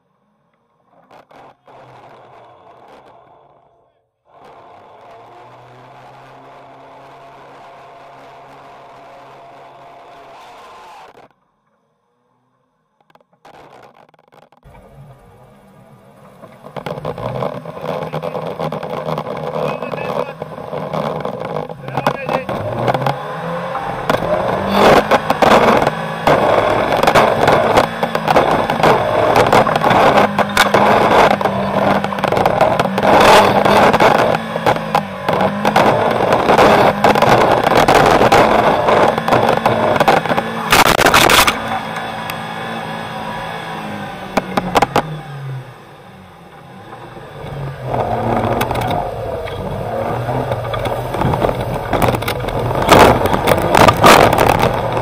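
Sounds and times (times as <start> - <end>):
engine running hard: 0.9 - 11.3, 14.7 - 55.0
scraping and knocking of snow: 16.5 - 42.0, 47.5 - 55.0.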